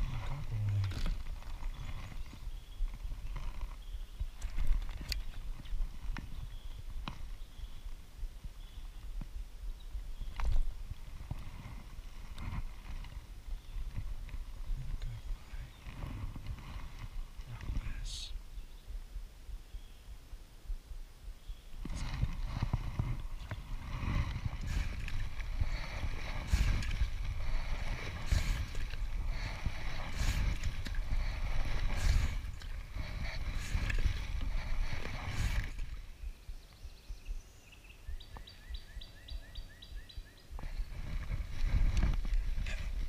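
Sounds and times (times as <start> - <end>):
oars swishing and knocking: 21.8 - 36.1, 40.6 - 43.0
low rumble: 21.8 - 36.6.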